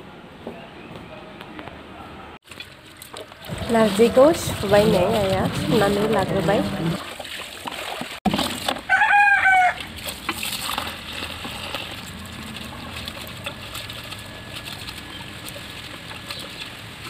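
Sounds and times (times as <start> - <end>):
hands splashing leaves in water: 2.4 - 17.0
rooster crowing: 8.8 - 9.9.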